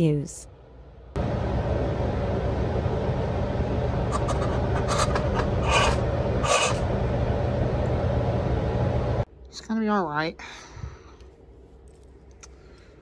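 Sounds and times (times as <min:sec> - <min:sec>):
low hum and rumble: 0:00.0 - 0:09.5
short scratchy sounds: 0:04.1 - 0:06.8.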